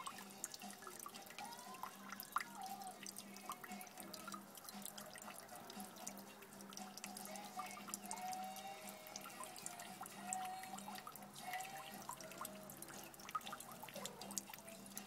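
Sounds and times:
water dripping from tap: 0.0s - 15.0s.

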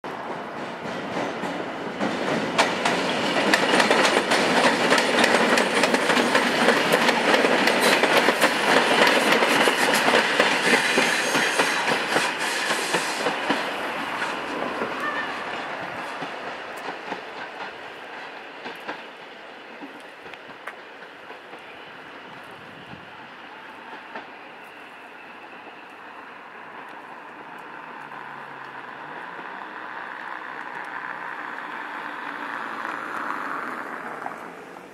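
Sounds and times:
train wheels clattering over rail joints: 0.1s - 21.8s.

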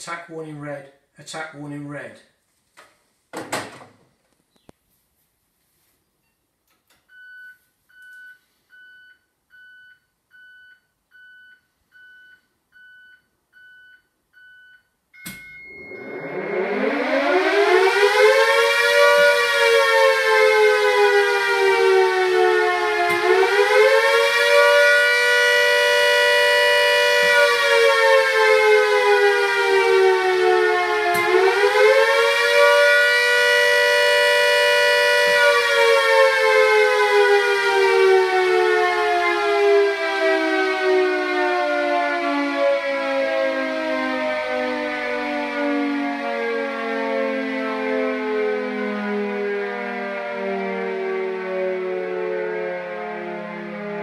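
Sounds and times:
short electronic beeps: 15.2s - 16.6s
air raid siren wailing: 15.6s - 54.0s.

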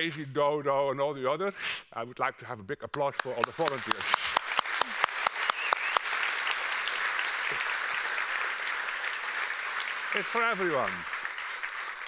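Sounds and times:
large audience applauding: 3.2s - 12.0s.

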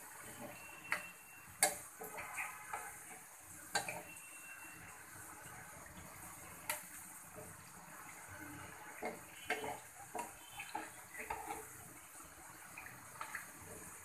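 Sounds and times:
fritters sizzling in oil: 0.0s - 14.0s
spatula scraping a pan: 8.8s - 12.0s.

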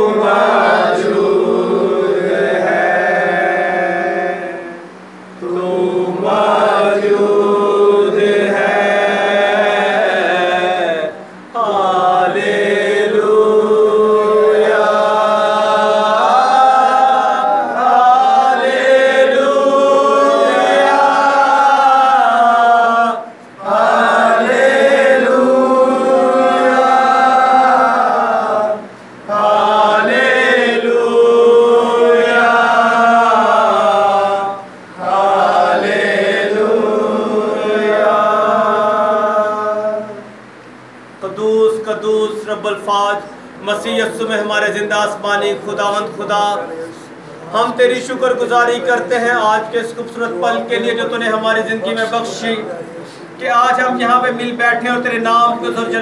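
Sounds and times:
group singing worship song: 0.0s - 42.9s.

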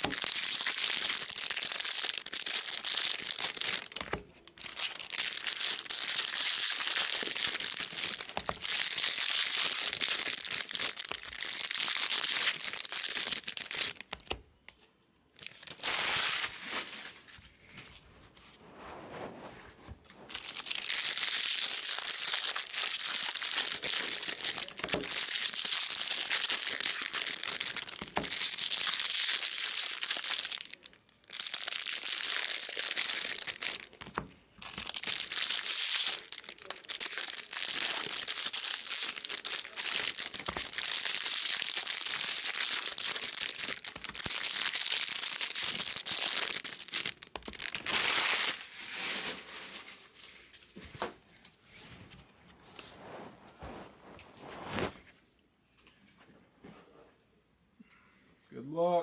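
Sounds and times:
foil wrappers tearing and crinkling: 0.0s - 14.3s, 15.4s - 17.4s, 20.3s - 50.7s.

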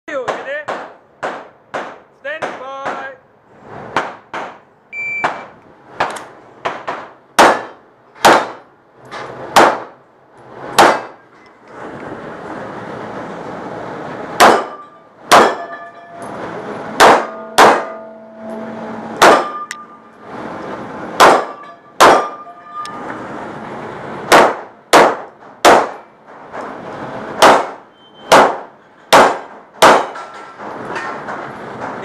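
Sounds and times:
pistol shots echoing indoors: 17.0s - 18.0s, 28.3s - 30.2s
brief ringing tone: 17.4s - 20.2s.

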